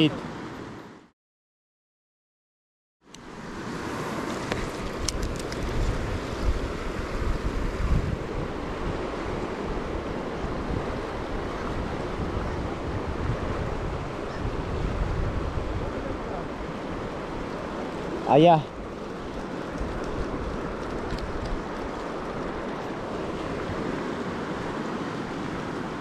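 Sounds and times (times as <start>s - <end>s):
wind buffeting microphone: 4.1s - 26.0s
fast-flowing river rushing: 8.4s - 20.9s.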